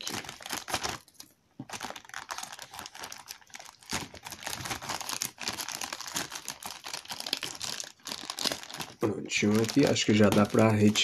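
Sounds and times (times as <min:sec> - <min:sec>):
plastic crinkling and rustling: 0:00.0 - 0:11.0.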